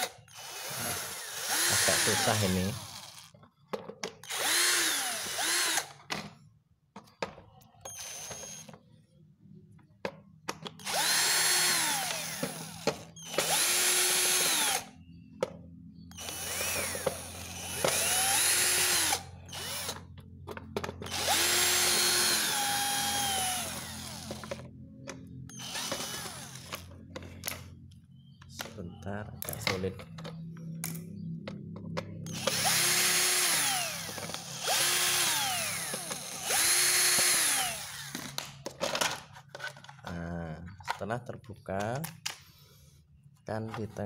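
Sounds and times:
cordless drill motor whining: 0:00.0 - 0:03.4, 0:04.2 - 0:06.1, 0:07.8 - 0:08.8, 0:10.7 - 0:15.3, 0:16.0 - 0:27.7, 0:32.2 - 0:38.5.

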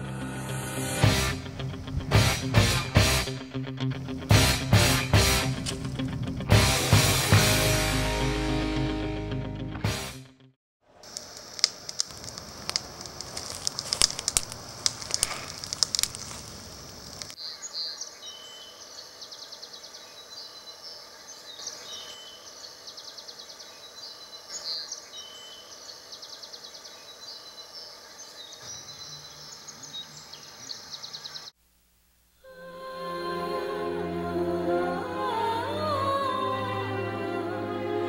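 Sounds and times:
crackles: 0:05.4 - 0:06.5, 0:10.9 - 0:17.4
steady hiss: 0:11.0 - 0:17.4
birds chirping and trilling: 0:12.1 - 0:31.5.

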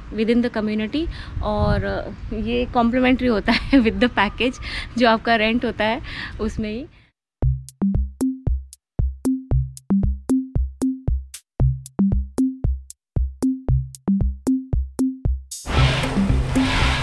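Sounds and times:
drum machine beat: 0:07.4 - 0:17.0.

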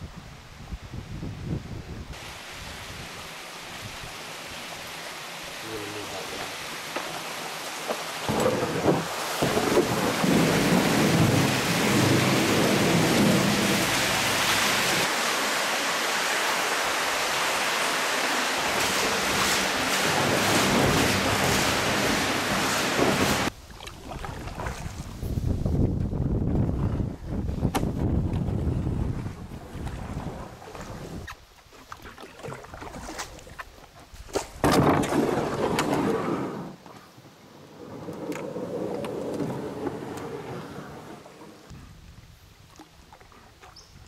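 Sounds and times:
water rushing through steel pipe: 0:02.2 - 0:25.2.

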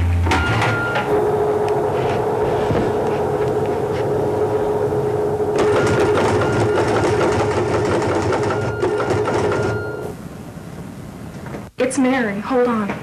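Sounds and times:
steady hum: 0:00.0 - 0:12.9
teletypewriter clatter: 0:05.6 - 0:09.9.

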